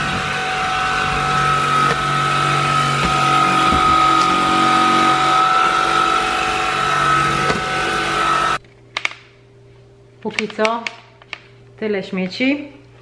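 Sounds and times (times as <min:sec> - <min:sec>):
stick vacuum motor whining: 0:00.0 - 0:08.6.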